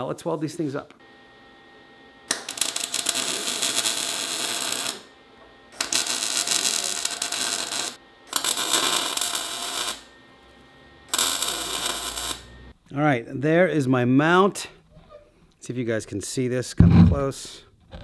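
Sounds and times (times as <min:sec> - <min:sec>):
mig welder crackling: 0:02.2 - 0:10.1, 0:11.0 - 0:12.7.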